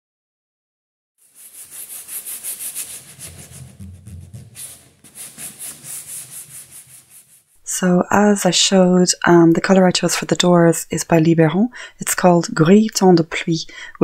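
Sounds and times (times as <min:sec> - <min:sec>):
sanding sponge rubbing painted wood: 0:01.2 - 0:07.6.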